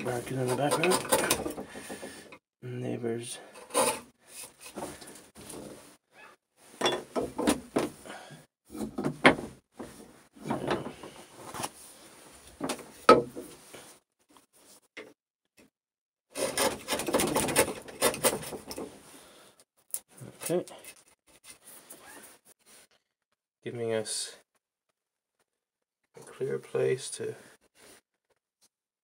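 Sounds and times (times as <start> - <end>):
chisel paring and scraping wood: 0.0 - 2.4, 3.5 - 5.1, 16.4 - 18.9
knocks and rubs of wood and tools: 0.0 - 2.4, 3.6 - 5.9, 6.8 - 8.0, 8.7 - 11.8, 12.4 - 13.8, 16.4 - 19.1
rasping paring cuts: 0.2 - 1.8.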